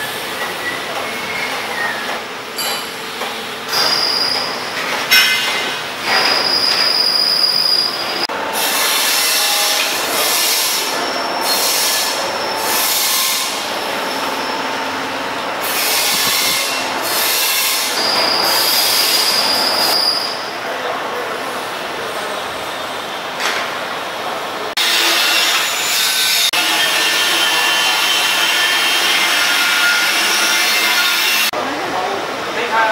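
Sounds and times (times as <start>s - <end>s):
loud mechanical noise: 0.0s - 32.9s
high-pitched squealing: 6.1s - 8.8s, 9.9s - 20.6s.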